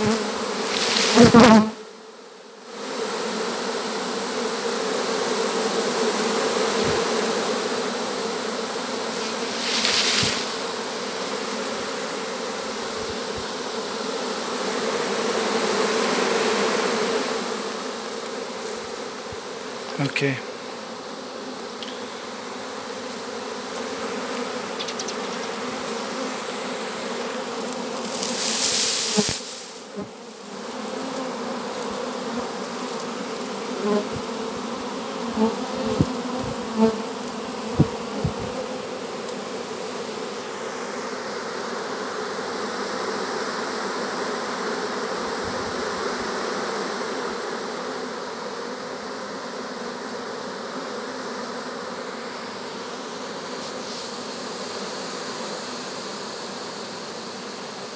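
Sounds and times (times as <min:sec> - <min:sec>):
bee swarm buzzing: 0:00.0 - 0:57.9.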